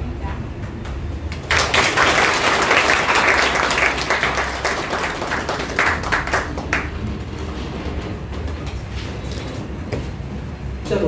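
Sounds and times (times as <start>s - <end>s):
people applauding: 1.3s - 7.2s.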